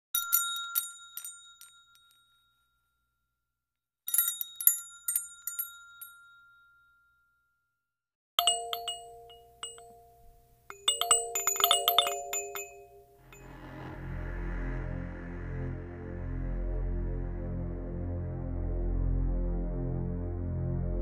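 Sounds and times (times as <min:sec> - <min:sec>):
high bright chimes tinkling: 0:08.4 - 0:13.8
held lower notes: 0:08.4 - 0:21.0.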